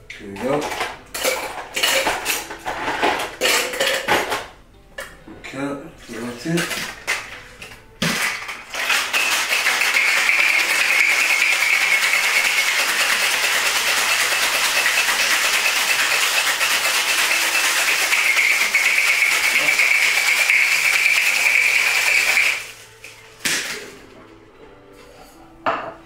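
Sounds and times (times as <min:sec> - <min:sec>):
ice rattling in cocktail shaker: 0:08.1 - 0:22.8.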